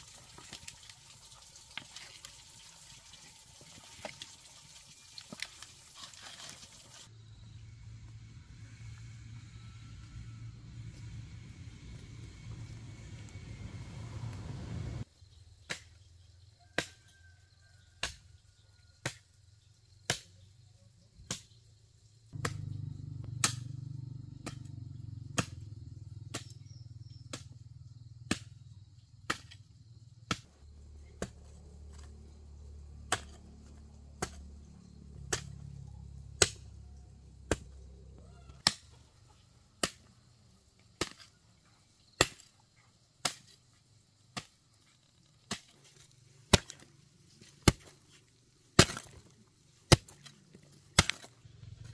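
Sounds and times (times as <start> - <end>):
low steady rumble: 7.1 - 15.1, 22.4 - 28.2
metal hoe striking dry soil: 22.4 - 23.7, 26.3 - 27.5, 29.3 - 29.6, 30.3 - 32.1, 33.0 - 34.6, 35.2 - 35.7, 36.4 - 37.8, 39.8 - 40.3, 40.9 - 41.4, 42.1 - 42.5, 43.2 - 51.9.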